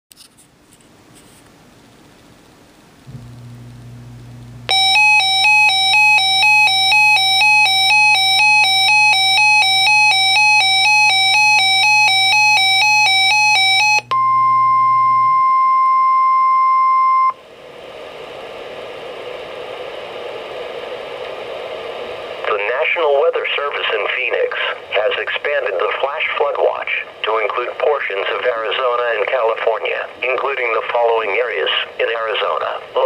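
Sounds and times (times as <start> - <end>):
radio hiss: 17.5 - 33.0.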